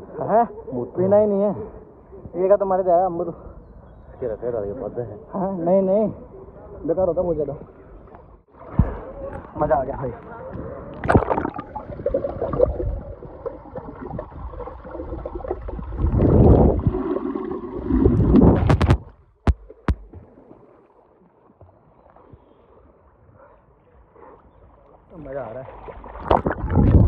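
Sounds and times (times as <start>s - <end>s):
pool water splashing and gurgling: 7.6s - 10.2s, 10.8s - 27.0s
muffled underwater hush: 7.6s - 19.0s.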